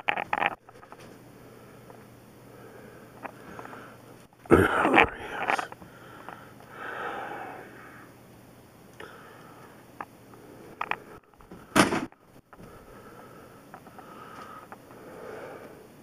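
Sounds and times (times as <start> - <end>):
person sniffing and breathing: 2.5 - 8.1, 12.6 - 16.0.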